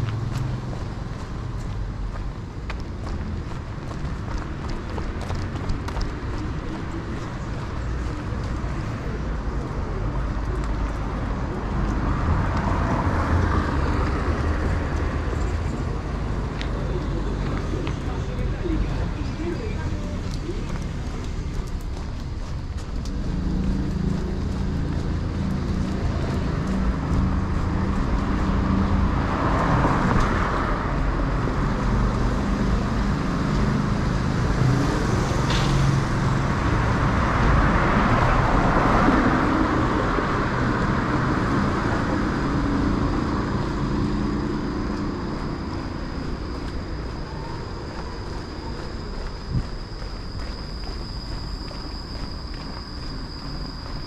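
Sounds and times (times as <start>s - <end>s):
cars passing: 0.0s - 54.0s
vehicle engine running: 13.8s - 30.0s, 39.2s - 54.0s.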